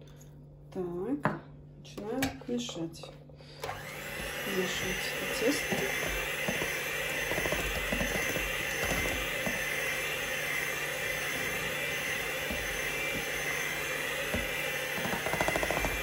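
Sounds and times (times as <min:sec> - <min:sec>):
electric hand mixer churning dough: 0:03.6 - 0:16.0.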